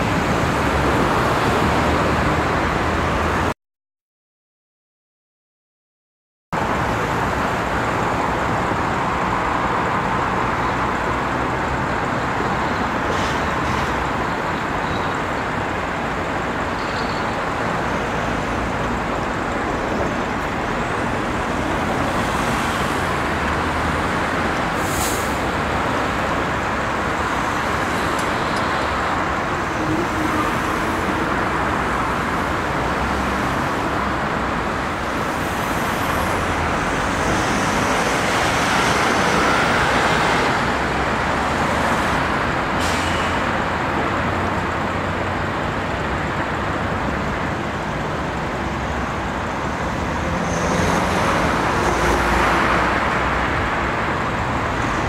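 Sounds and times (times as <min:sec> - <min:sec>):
road traffic noise: 0:00.0 - 0:03.6, 0:06.5 - 0:55.0.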